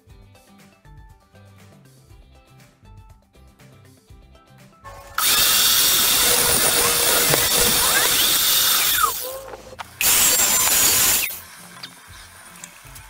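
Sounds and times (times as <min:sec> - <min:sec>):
table saw cutting wood: 0:05.1 - 0:11.4.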